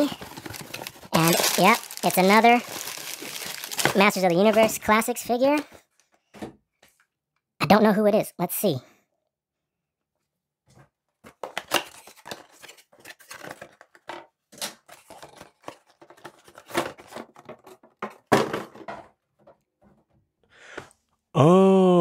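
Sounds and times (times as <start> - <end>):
cardboard tearing: 0.1 - 4.2.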